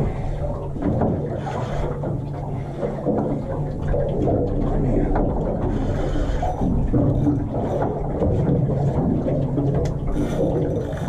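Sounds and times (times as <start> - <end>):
boat engine idling: 0.0 - 11.0.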